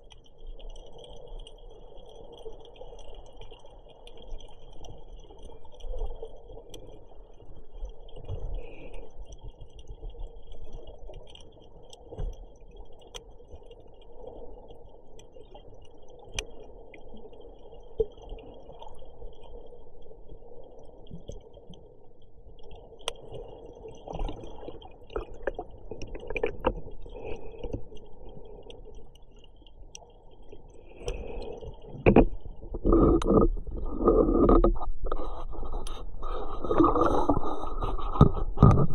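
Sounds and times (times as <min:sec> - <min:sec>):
muffled underwater water wash: 0:00.0 - 0:38.9
sharp underwater clicks: 0:30.9 - 0:35.2.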